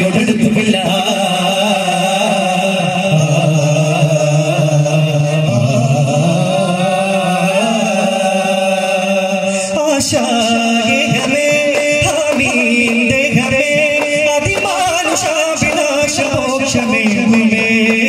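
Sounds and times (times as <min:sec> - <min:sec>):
man singing through a pa: 0:00.0 - 0:18.0
frame drums beating: 0:10.1 - 0:18.0.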